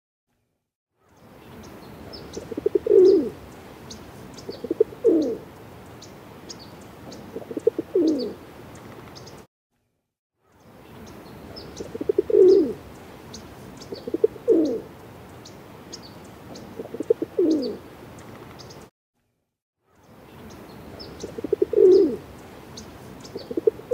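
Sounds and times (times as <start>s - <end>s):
pigeons cooing: 2.1s - 3.5s, 4.4s - 5.4s, 7.1s - 8.4s, 11.6s - 12.9s, 13.8s - 14.9s, 16.5s - 17.8s, 21.0s - 23.9s.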